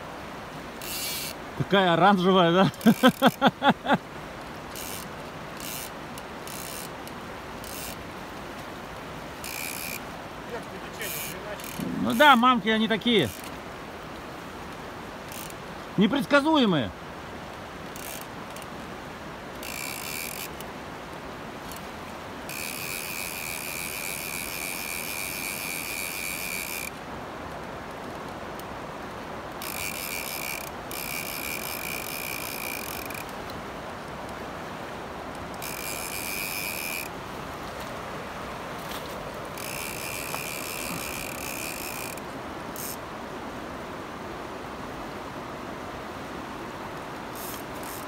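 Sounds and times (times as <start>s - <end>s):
river rushing: 0.0s - 48.0s
fishing reel ratchet clicking: 0.8s - 1.4s, 2.8s - 3.4s, 4.7s - 8.0s, 9.4s - 10.1s, 11.0s - 12.4s, 13.3s - 13.6s, 15.3s - 15.6s, 17.9s - 18.7s, 19.6s - 20.7s, 22.5s - 27.0s, 29.6s - 33.4s, 35.5s - 37.2s, 39.5s - 42.2s, 42.8s - 43.0s, 47.3s - 48.0s.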